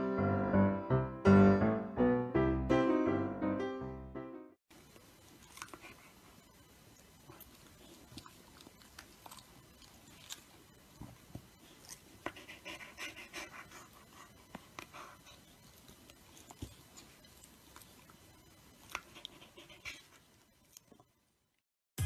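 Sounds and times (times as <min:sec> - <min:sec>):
piano music: 0:00.0 - 0:04.6.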